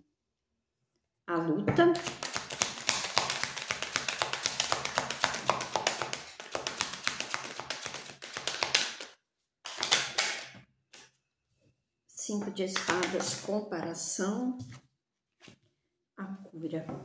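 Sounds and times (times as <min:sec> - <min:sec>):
cards being shuffled by hand: 0:02.0 - 0:11.1.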